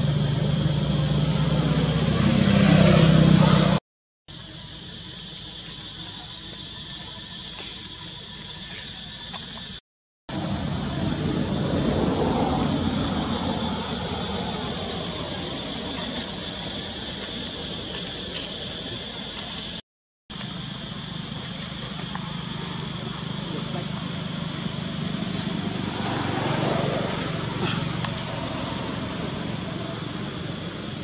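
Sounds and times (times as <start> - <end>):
low rumble of passing vehicle: 0.0 - 3.8, 10.3 - 19.1, 20.7 - 31.0
high insect drone: 0.0 - 31.0.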